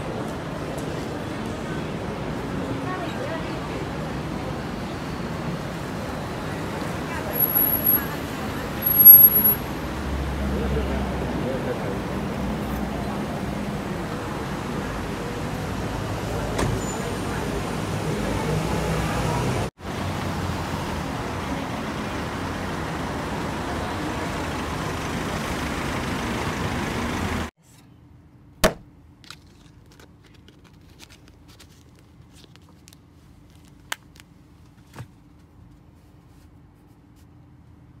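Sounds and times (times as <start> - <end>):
city road traffic: 0.0 - 29.2.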